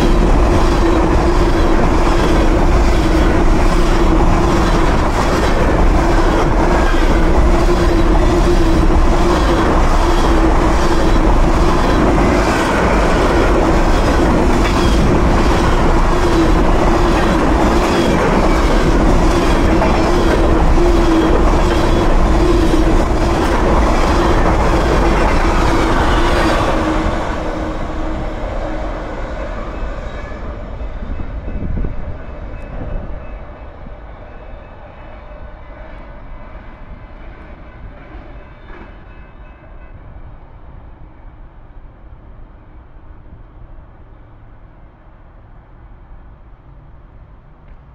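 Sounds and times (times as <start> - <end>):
freight train wheels rumbling: 0.0 - 47.9.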